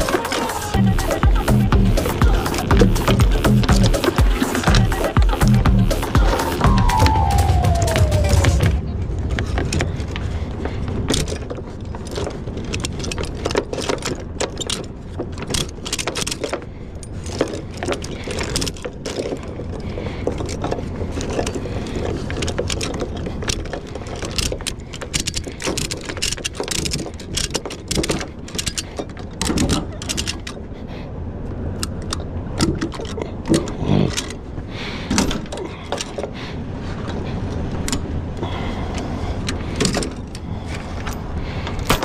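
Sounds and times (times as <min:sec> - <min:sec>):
steady low rumble: 0:00.7 - 0:15.8.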